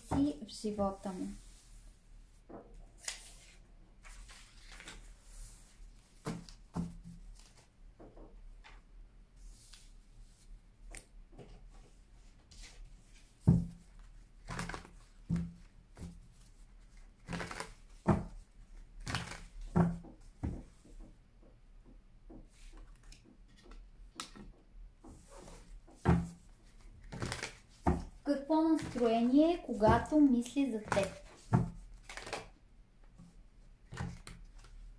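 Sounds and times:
playing cards shuffling: 3.0 - 7.7, 12.5 - 15.1, 17.2 - 18.4, 19.0 - 19.6, 27.0 - 28.1, 28.7 - 29.3, 30.0 - 32.6, 33.9 - 34.8.

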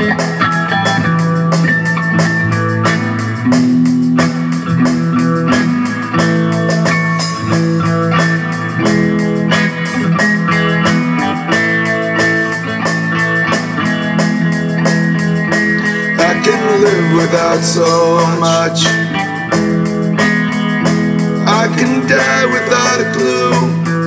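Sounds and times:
electric guitar playing: 0.0 - 24.0
steady drum beat: 0.0 - 24.0.

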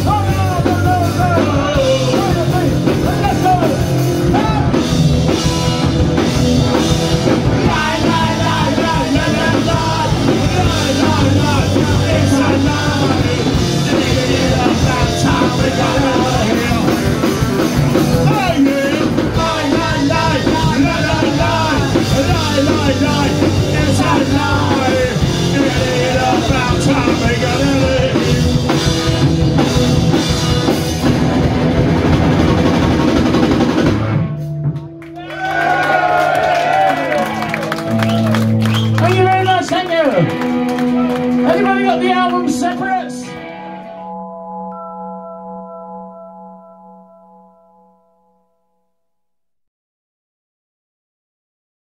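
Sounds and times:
distorted electric guitar: 0.0 - 35.3, 37.5 - 44.9
drum kit: 0.0 - 43.5
bass guitar: 0.0 - 47.8.

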